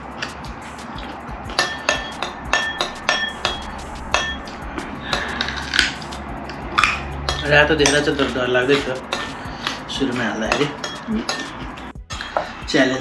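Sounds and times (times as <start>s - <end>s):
spoon clinking against ceramic bowl: 1.0s - 4.4s, 6.7s - 12.6s.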